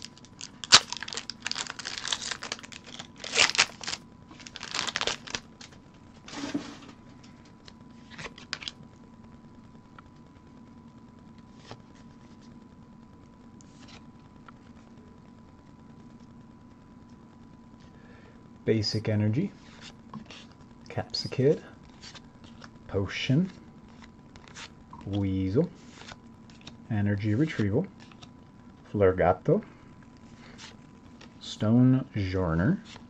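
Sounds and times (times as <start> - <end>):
foil wrapper tearing and crinkling: 0.0 - 5.8, 8.1 - 8.8.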